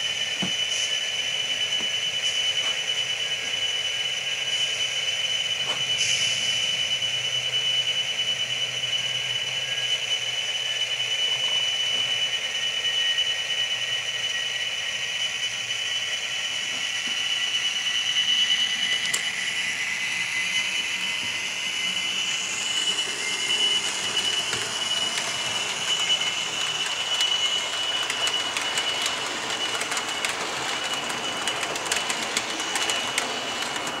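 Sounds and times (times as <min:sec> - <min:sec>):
steady high whine: 0:00.0 - 0:34.0
wheels clicking over track: 0:27.9 - 0:34.0.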